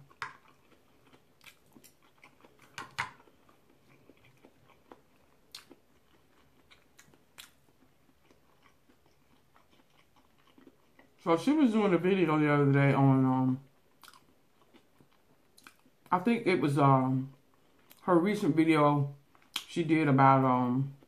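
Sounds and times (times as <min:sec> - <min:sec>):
person chewing food: 0:00.0 - 0:11.2, 0:13.7 - 0:16.1, 0:17.3 - 0:18.0, 0:19.2 - 0:19.7.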